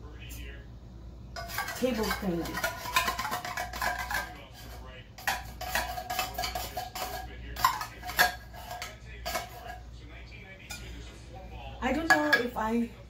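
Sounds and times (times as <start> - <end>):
spoon scraping inside tin can: 1.4 - 9.8.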